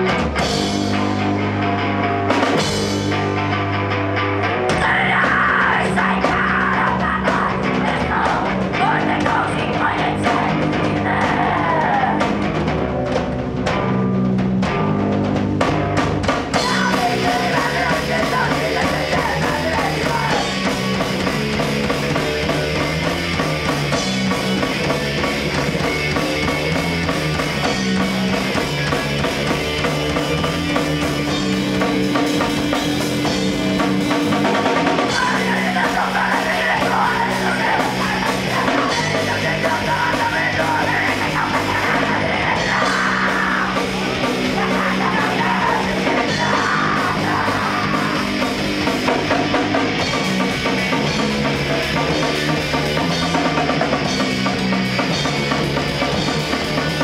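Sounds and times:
heavy rock band playing: 0:00.0 - 0:57.0
woman singing into a microphone: 0:04.7 - 0:12.3, 0:16.6 - 0:20.5, 0:35.1 - 0:48.3.

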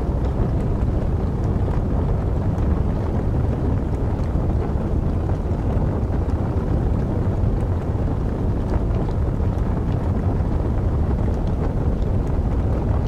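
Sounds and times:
fire crackles: 0:00.0 - 0:13.0
wood fire rushing rumble: 0:00.0 - 0:13.0.

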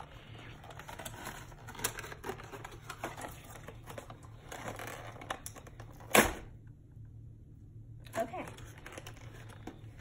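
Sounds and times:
packaging crinkling and rustling: 0:00.0 - 0:06.2, 0:08.4 - 0:10.0.

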